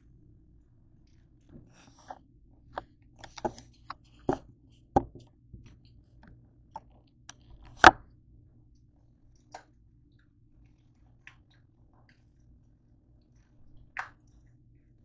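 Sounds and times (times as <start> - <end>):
objects knocking on kitchen counter: 5.0 - 5.2.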